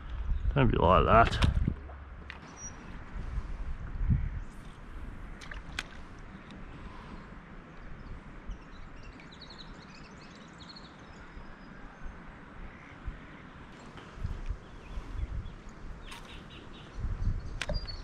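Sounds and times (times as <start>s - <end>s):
wind rumbling on microphone: 0.0s - 18.0s
faint bird chirps: 6.3s - 18.0s.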